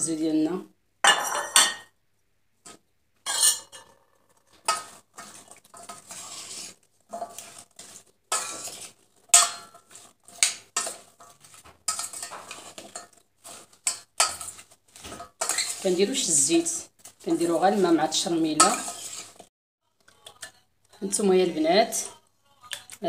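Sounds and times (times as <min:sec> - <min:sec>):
metal spoon scraping a pot: 0:02.7 - 0:19.5.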